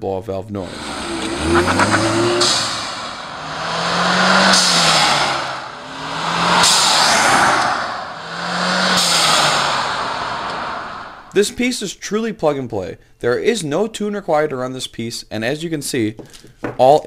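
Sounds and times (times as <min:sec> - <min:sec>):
car engine revving: 0:00.6 - 0:11.4.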